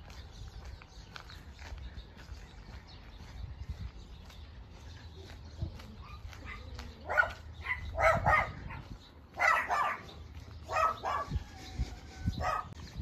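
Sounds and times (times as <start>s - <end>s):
dog barking: 6.4s - 11.4s, 12.4s - 12.8s.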